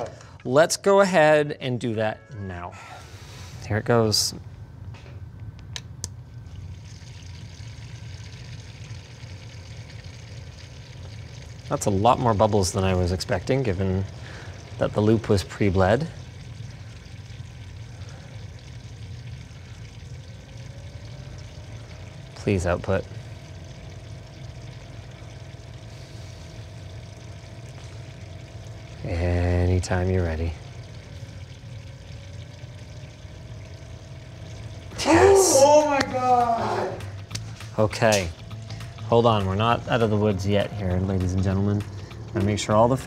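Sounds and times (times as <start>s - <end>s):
steady low hum: 0.0s - 43.0s
water cooling loop gurgling: 0.0s - 43.0s.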